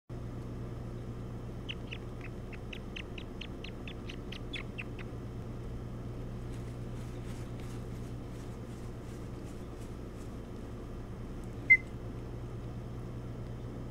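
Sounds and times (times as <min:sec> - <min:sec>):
steady low hum: 0:00.1 - 0:13.9
bird high chirps: 0:01.6 - 0:05.1, 0:11.6 - 0:11.9.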